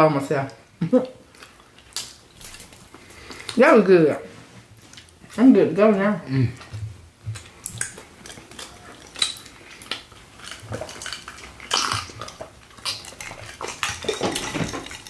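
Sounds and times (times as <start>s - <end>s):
tableware clinking: 13.2s - 15.0s.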